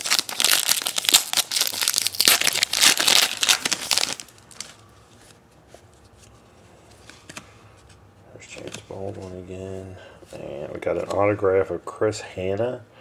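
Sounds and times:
wrapper crinkling and tearing: 0:00.0 - 0:04.8.

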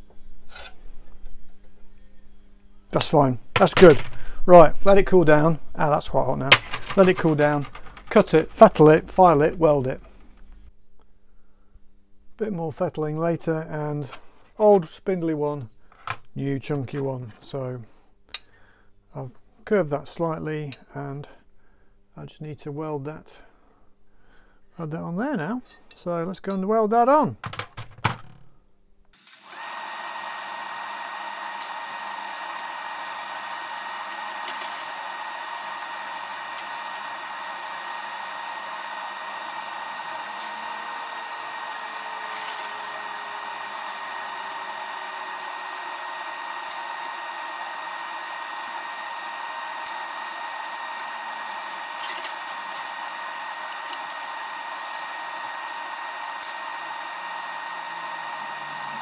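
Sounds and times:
fan humming: 0:29.4 - 0:59.0.

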